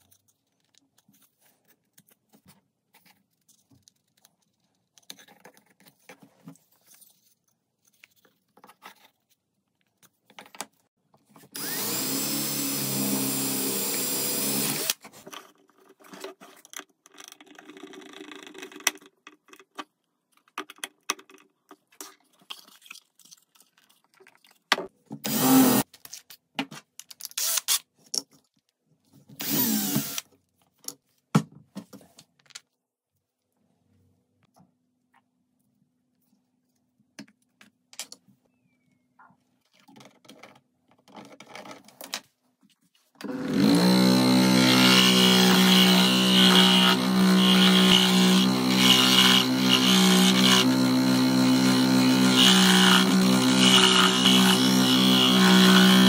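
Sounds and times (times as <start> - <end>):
power tool motor running: 11.6 - 15.0, 25.2 - 25.8, 29.4 - 30.2, 43.2 - 56.0.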